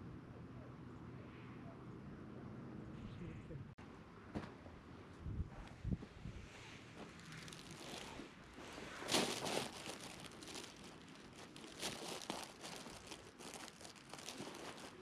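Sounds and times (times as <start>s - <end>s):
dry grass rustling and crackling: 7.0s - 15.0s.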